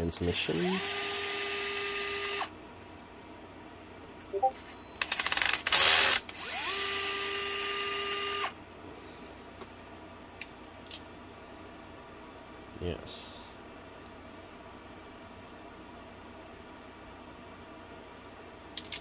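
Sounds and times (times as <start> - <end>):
electric screwdriver motor whining: 5.3 - 8.5.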